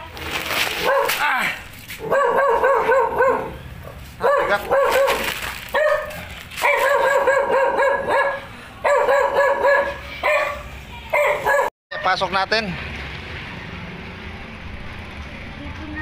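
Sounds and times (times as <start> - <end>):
dog barking high-pitched: 0.8 - 1.2, 2.0 - 3.6, 4.2 - 12.2.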